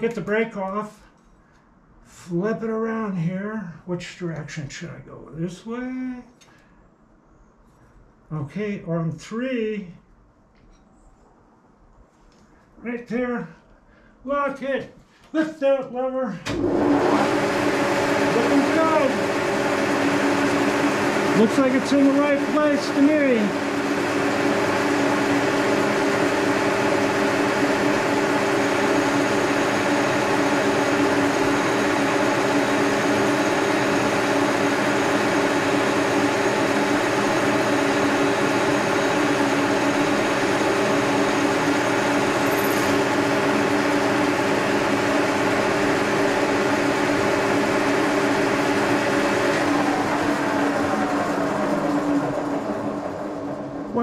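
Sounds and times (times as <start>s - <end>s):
milling machine humming: 16.5s - 54.0s.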